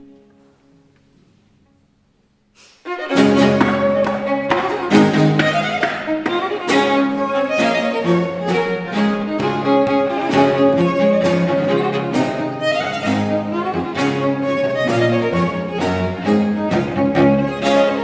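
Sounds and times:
violin playing a tune: 2.8 - 18.0
cello bass line: 2.9 - 18.0
guitar strumming chords: 3.0 - 18.0.

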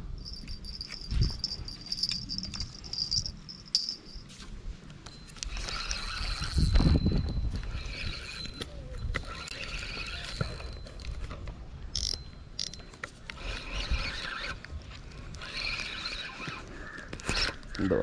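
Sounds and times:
fishing reel clicking: 5.3 - 11.3, 11.9 - 17.8.

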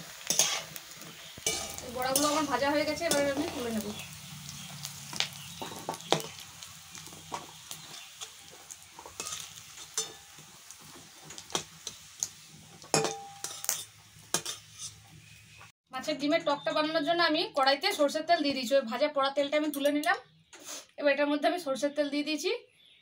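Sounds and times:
fritters sizzling in hot oil: 0.0 - 15.7
metal spatula scraping a pan: 0.2 - 15.6.

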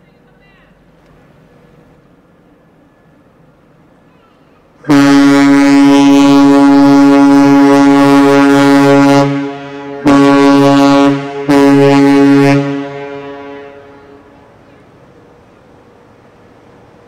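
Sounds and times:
ship horn blasts: 4.8 - 15.9.

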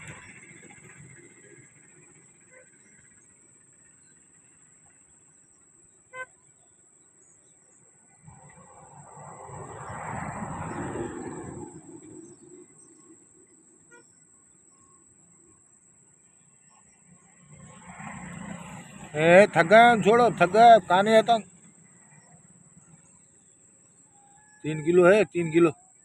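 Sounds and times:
vehicle passing by: 8.0 - 13.3, 16.3 - 23.1.

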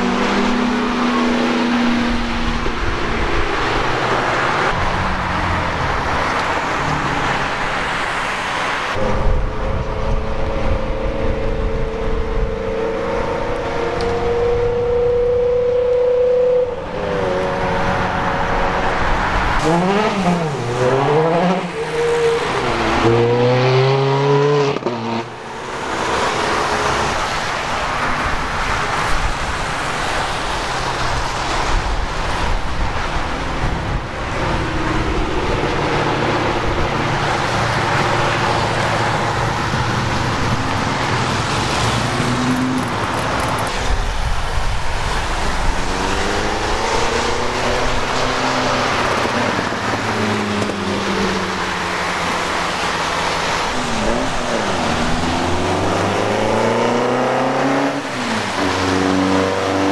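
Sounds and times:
sports cars accelerating: 0.0 - 59.9
tyres hissing on wet road: 3.5 - 9.0, 25.4 - 59.9.

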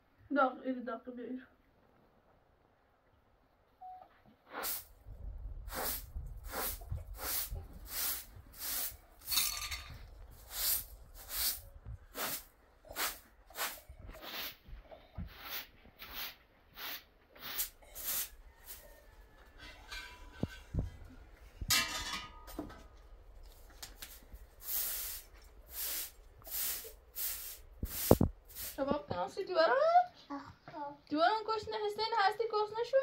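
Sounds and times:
broom sweeping concrete floor: 4.4 - 5.0, 5.6 - 19.0, 19.6 - 21.0, 23.5 - 29.1.

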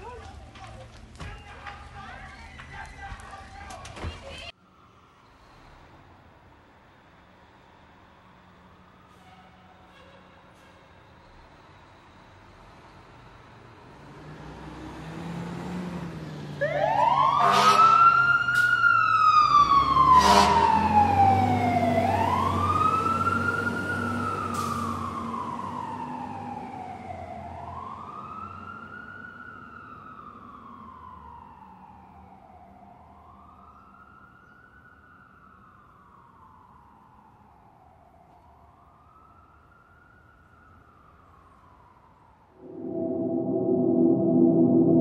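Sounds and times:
emergency siren wailing: 16.6 - 45.0.

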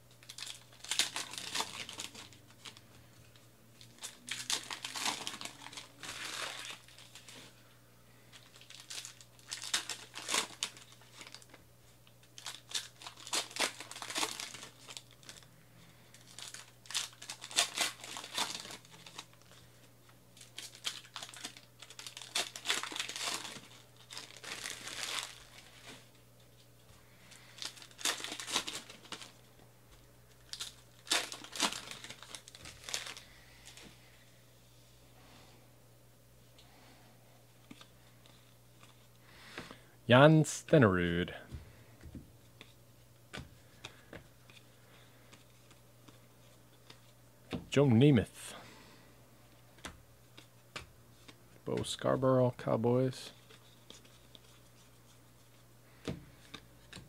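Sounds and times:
card pack wrappers tearing and crinkling: 0.1 - 7.6, 8.3 - 19.7, 20.4 - 26.6, 27.2 - 29.5, 30.3 - 33.9.

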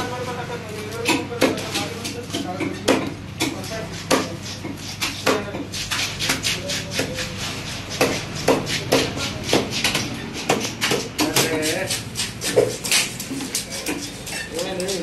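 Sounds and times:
knife chopping on wooden block: 1.0 - 14.1.

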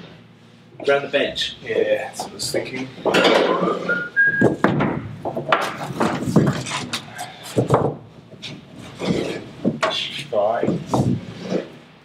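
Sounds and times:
rope rubbing and scraping: 10.7 - 12.0.

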